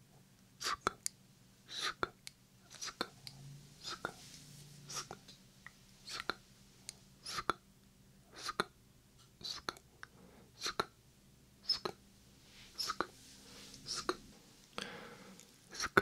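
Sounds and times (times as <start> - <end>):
whispered mouth sounds: 0.6 - 1.1, 1.7 - 4.2, 4.9 - 5.3, 6.0 - 6.4, 7.2 - 7.6, 8.3 - 8.8, 9.4 - 9.9, 10.6 - 11.0, 11.6 - 12.0, 12.8 - 13.2, 13.8 - 14.2, 15.7 - 16.0.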